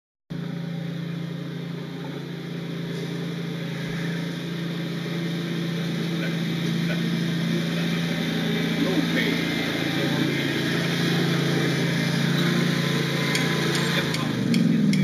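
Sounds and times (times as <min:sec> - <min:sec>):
lawnmower engine running: 0:00.3 - 0:15.0.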